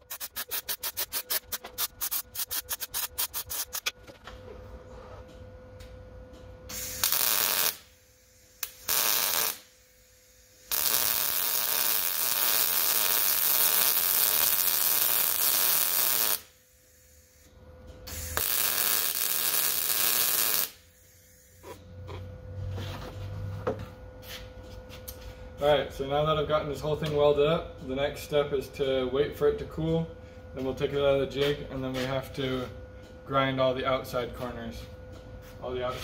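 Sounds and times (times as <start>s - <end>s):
arc welding hiss: 0.0s - 3.9s, 6.7s - 17.5s, 18.1s - 21.8s.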